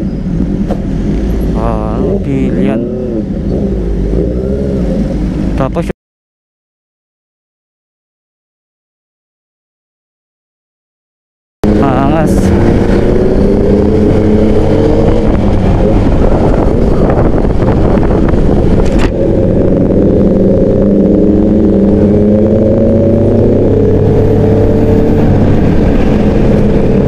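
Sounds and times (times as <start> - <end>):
road noise: 0.0 - 6.0, 11.6 - 27.0.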